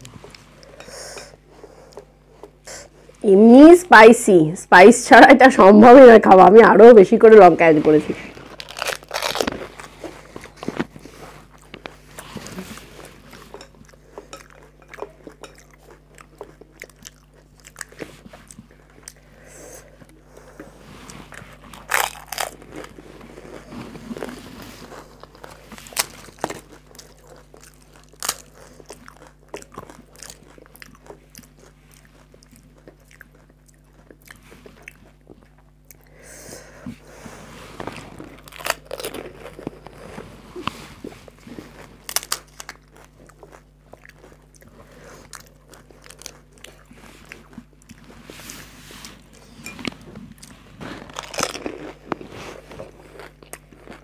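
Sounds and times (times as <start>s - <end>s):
crunching of crisp shells: 8.4s - 10.6s, 21.6s - 24.3s, 24.9s - 34.2s, 38.0s - 40.2s, 41.7s - 44.7s, 50.4s - 54.0s
wet chewing: 8.4s - 19.3s, 20.0s - 36.1s, 37.8s - 54.0s.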